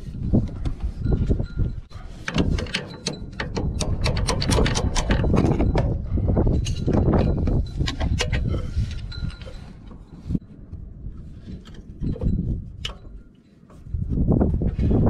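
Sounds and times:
bar clamp clicking on metal: 2.3s - 5.4s.

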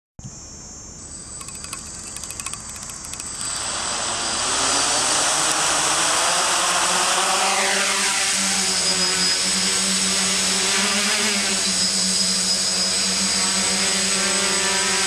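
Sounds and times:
faint ticks: 1.4s - 3.4s
quadcopter propellers spinning: 1.4s - 15.0s.

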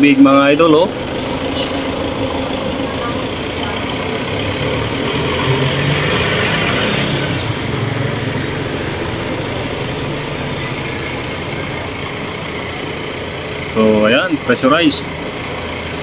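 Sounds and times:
motor hum: 0.4s - 5.7s.

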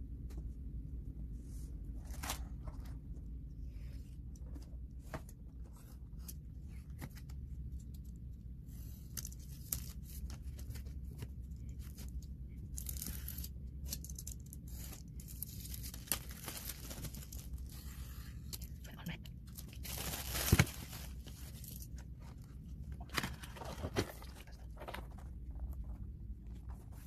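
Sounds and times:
plastic shrink-wrap crinkling: 11.7s - 17.8s, 19.4s - 22.0s.

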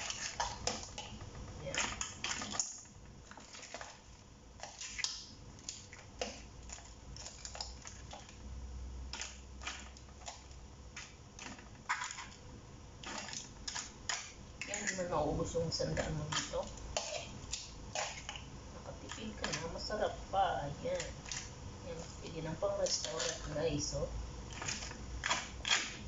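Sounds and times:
crab shell crunching: 0.0s - 12.4s, 16.2s - 19.8s, 20.8s - 22.2s, 24.4s - 26.0s.

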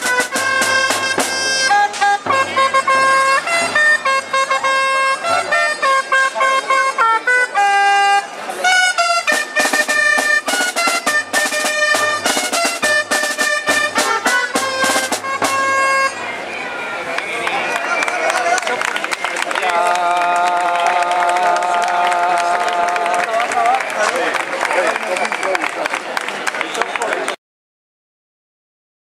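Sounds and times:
steady drum beat: 0.0s - 3.6s, 9.1s - 16.1s
wind instruments playing melody: 0.0s - 18.9s.

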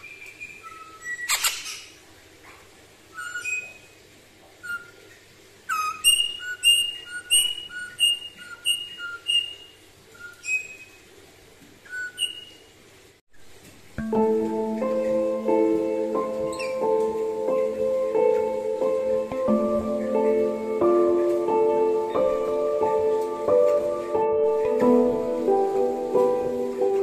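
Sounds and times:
parrot whistling piping notes: 0.0s - 2.0s, 3.1s - 4.0s, 4.6s - 11.1s, 11.8s - 12.7s, 14.3s - 22.8s.

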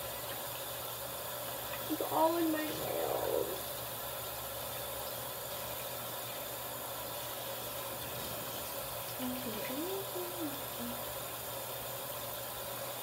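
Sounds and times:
faint voice: 2.0s - 3.6s.

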